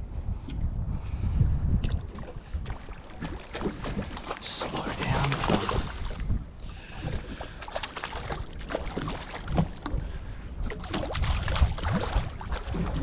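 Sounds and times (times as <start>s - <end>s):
wind buffeting microphone: 0.0s - 13.0s
fish splashing in water: 6.9s - 10.0s, 10.7s - 13.0s.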